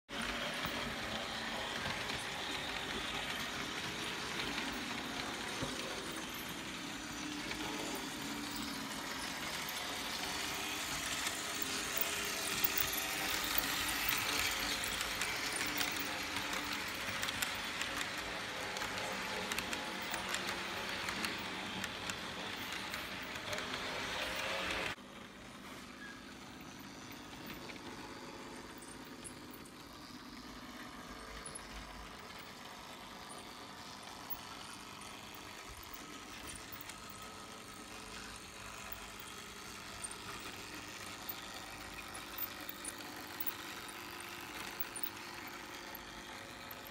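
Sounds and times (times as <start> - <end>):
wheels clicking over rail joints: 0.1 - 25.0
model train motor whirring: 0.1 - 46.9.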